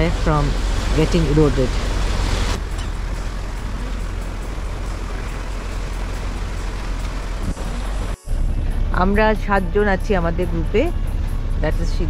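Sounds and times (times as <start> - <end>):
water rushing along hull: 0.0 - 8.7
motor boat engine rumbling: 0.0 - 12.0.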